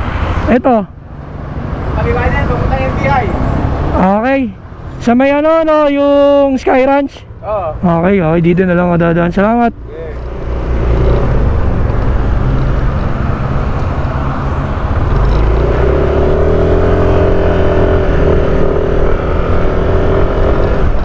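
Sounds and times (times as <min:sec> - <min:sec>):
wind rumble on microphone: 0:10.5 - 0:21.0.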